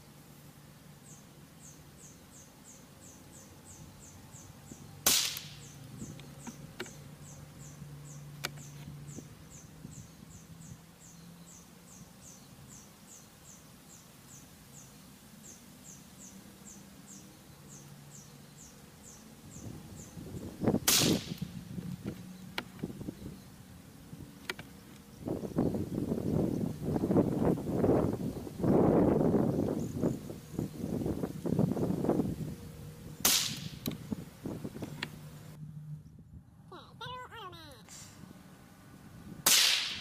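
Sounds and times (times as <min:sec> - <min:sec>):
gunshot cracks: 0:05.0 - 0:05.6, 0:20.9 - 0:21.4, 0:33.2 - 0:33.8, 0:39.4 - 0:40.0.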